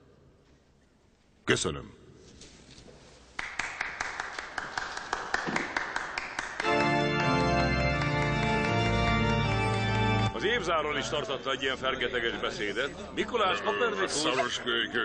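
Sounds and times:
hand clapping: 3.4 - 10.4
scattered applause: 3.4 - 10.7
music with sustained chords: 6.6 - 11.0.

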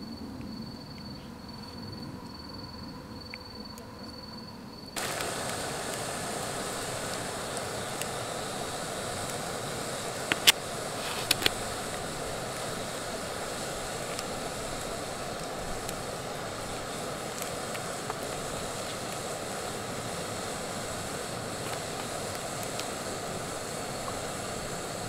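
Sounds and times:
gas stove burner hissing: 0.0 - 25.0
sharp clicks: 10.2 - 11.6.

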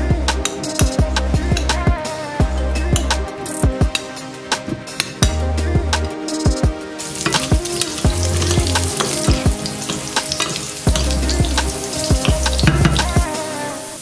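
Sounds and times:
carrots sizzling in hot oil: 7.0 - 14.0
utensils clicking against pan: 7.2 - 13.2.

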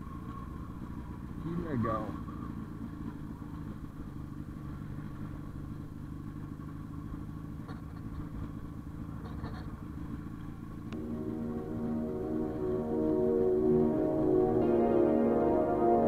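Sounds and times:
motorcycle engine running: 0.0 - 16.0
calm background music: 11.0 - 16.0.

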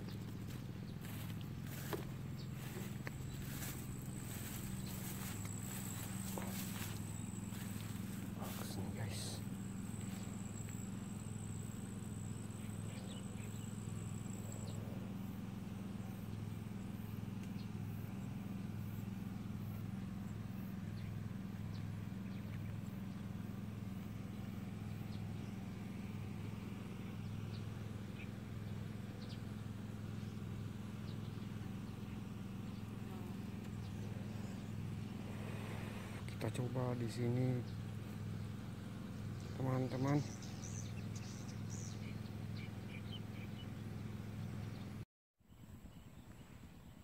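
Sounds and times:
low buzzing hum: 0.0 - 47.0
faint ticks: 17.0 - 18.1.

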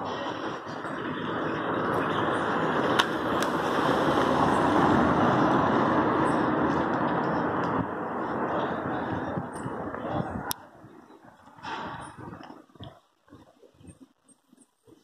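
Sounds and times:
car driving past: 0.2 - 8.7.

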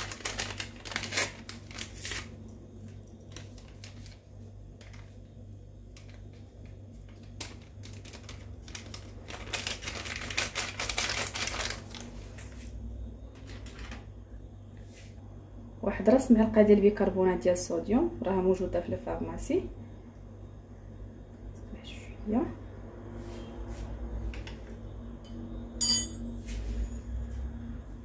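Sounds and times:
paper sachet crinkling: 0.0 - 5.2, 5.8 - 12.6.

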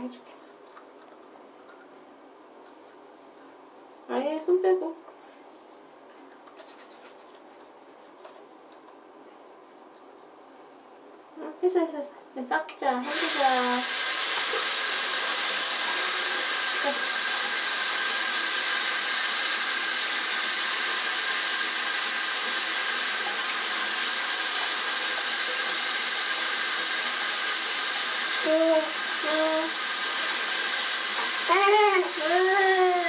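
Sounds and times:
water running from a sink tap: 13.0 - 33.0.

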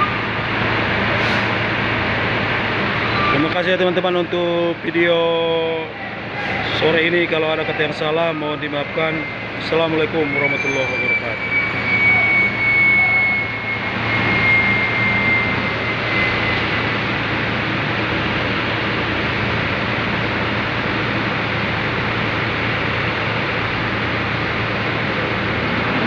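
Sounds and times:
engines and machinery roaring: 0.0 - 26.0
thin high whine: 5.7 - 20.0
low hum: 7.2 - 26.0.

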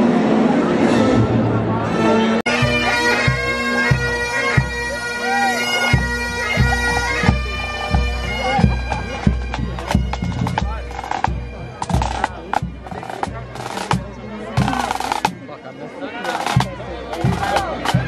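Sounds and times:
bagpipes playing melody over drones: 0.1 - 18.0
bass drum beating march: 5.9 - 15.5, 16.2 - 18.0.

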